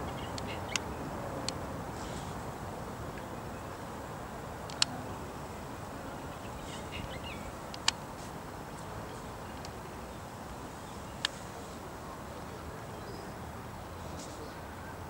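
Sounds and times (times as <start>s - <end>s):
songbird clicking call notes: 0.0s - 1.6s, 4.6s - 5.0s, 6.3s - 8.1s
steady background hiss: 0.0s - 15.0s
faint bird chirps: 6.1s - 7.6s.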